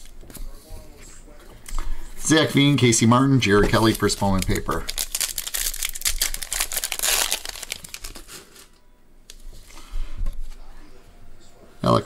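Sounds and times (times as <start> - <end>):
foil wrapper crinkling and tearing: 3.7 - 8.8.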